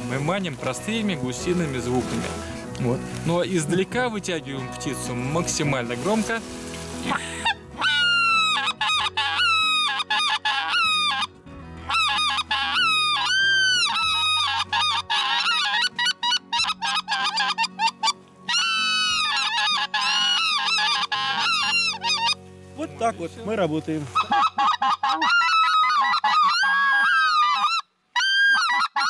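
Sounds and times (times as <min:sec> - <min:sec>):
goose calls honking and clucking: 0:07.1 - 0:11.3, 0:11.9 - 0:22.4, 0:24.1 - 0:29.0.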